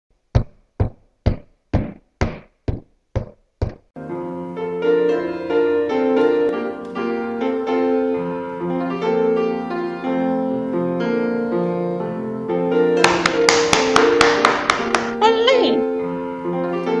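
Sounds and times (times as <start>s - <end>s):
piano music: 4.0s - 17.0s
sharp knocks: 13.0s - 15.2s.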